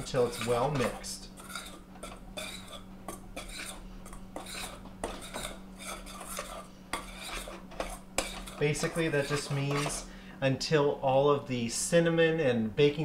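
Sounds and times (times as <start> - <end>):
spoon scraping a metal bowl: 0.0 - 10.1.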